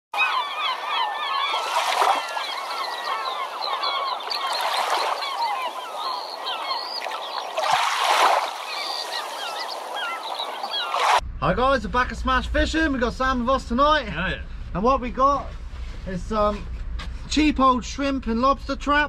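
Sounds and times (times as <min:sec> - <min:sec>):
flock of birds calling: 0:00.2 - 0:11.2.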